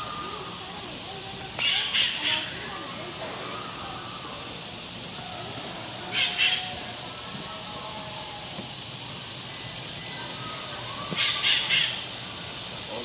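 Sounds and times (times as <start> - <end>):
bird's harsh raspy calls: 1.5 - 8.3, 9.2 - 12.7.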